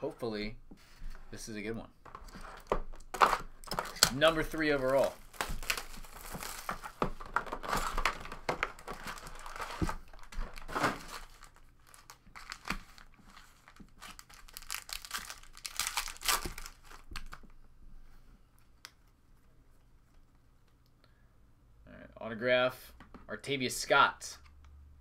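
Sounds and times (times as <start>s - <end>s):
foil card packs crinkling: 2.2s - 17.4s.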